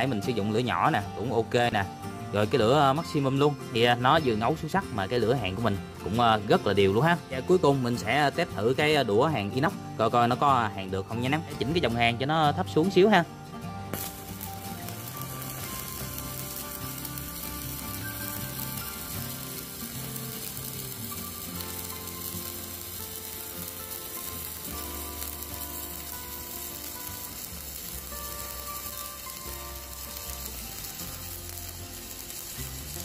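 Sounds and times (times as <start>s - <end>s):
welding arc crackling: 13.9s - 33.0s.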